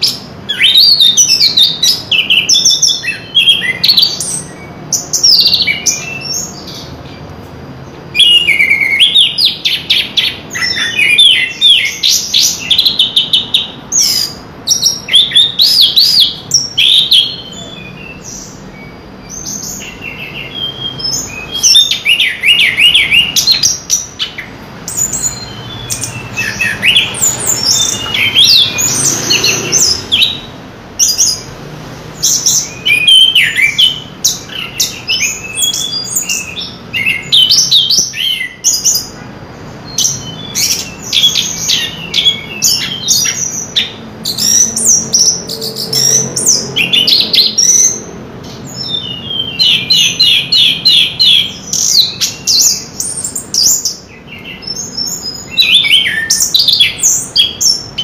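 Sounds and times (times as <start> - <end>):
thrush singing whistled phrases: 0.0 - 7.0, 8.1 - 31.5, 32.2 - 39.2.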